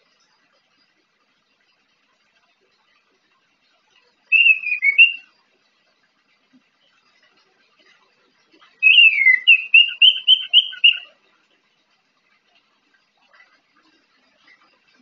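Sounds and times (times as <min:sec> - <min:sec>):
bird singing in whistles: 0:04.3 - 0:05.3, 0:08.8 - 0:11.1.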